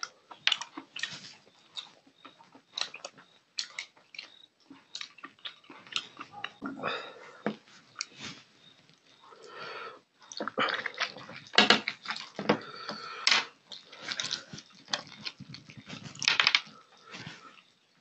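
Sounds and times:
wet chewing and lip-smacking: 0.0s - 6.7s, 7.5s - 18.0s.

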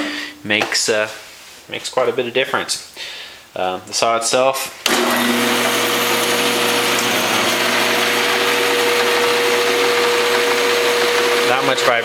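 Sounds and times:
bandsaw running: 4.9s - 12.0s.

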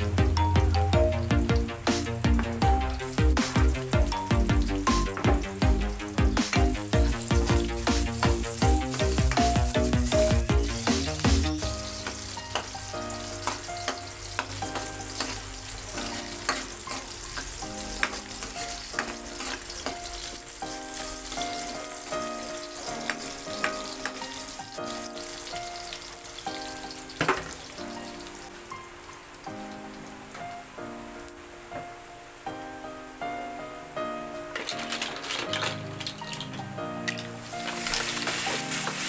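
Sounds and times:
vegetables sizzling in hot oil: 0.0s - 31.4s, 34.0s - 39.0s
soft background music: 0.0s - 39.0s
metal ladle scraping a wok: 16.4s - 20.3s.

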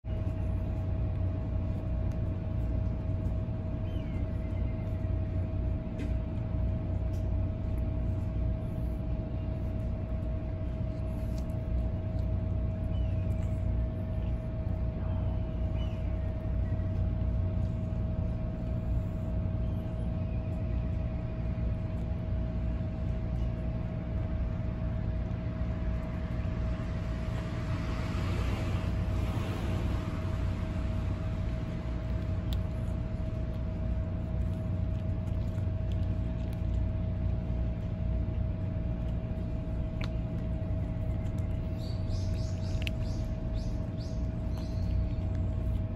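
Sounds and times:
constant hum: 0.0s - 45.9s
low rumble: 0.0s - 45.9s
cats crunching dry kibble: 0.1s - 45.9s.

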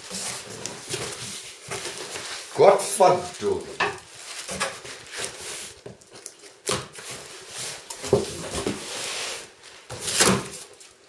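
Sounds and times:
cardboard tearing and rustling: 0.0s - 11.0s.

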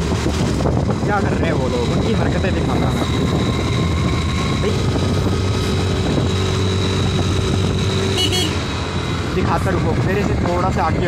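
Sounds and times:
road and wind noise: 0.0s - 11.0s
scooter engine running: 5.1s - 9.1s.

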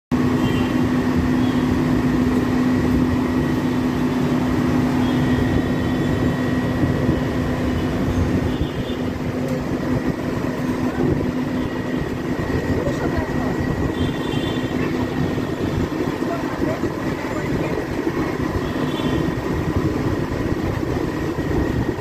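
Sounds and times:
loud background noise: 0.1s - 22.0s
steady mechanical hum: 0.1s - 22.0s.

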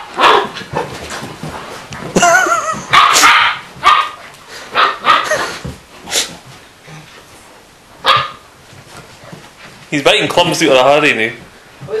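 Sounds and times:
dog barking and yipping: 0.0s - 0.6s, 2.8s - 5.6s, 8.0s - 8.5s
dog yelping: 8.0s - 8.4s.

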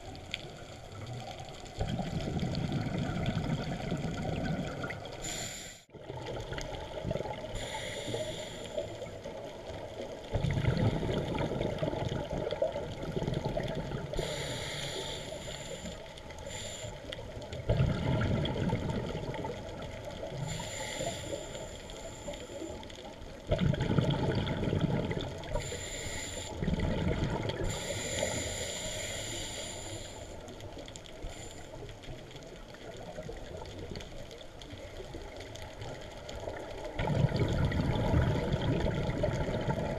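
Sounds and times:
underwater noise: 0.0s - 39.9s
bubbling exhalations: 1.8s - 5.2s, 17.7s - 19.5s, 23.5s - 25.4s, 37.0s - 39.9s
hissing regulator inhalations: 5.2s - 5.9s, 7.6s - 9.1s, 14.2s - 17.1s, 20.4s - 22.8s, 25.6s - 26.6s, 27.6s - 30.5s.

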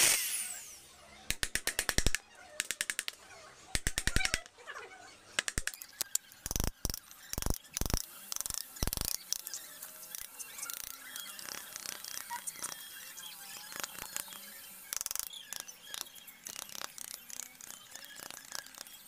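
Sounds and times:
birds chirping: 3.2s - 19.0s
chisel blade ticking in wood: 5.4s - 9.5s.

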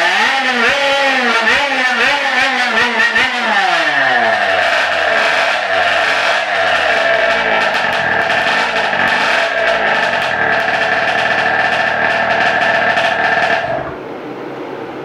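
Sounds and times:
small two-stroke engine revving high: 0.0s - 14.0s.

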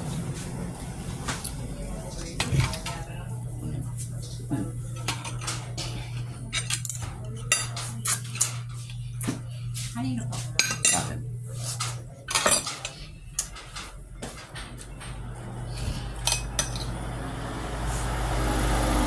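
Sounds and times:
cutlery clinking on a plate: 4.9s - 9.4s, 10.6s - 15.2s, 16.2s - 16.9s.

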